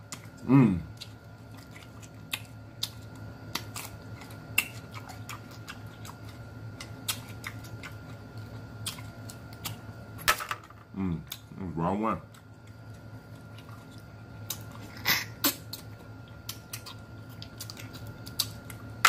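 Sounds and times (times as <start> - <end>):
person chewing food: 0.0 - 10.1, 12.2 - 19.0.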